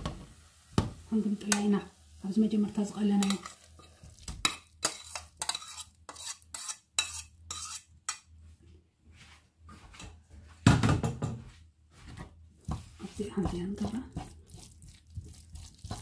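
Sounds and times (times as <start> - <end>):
vegetables sizzling in oil: 0.0 - 5.8
wooden spoon scraping a pan: 1.2 - 8.3, 11.9 - 16.0.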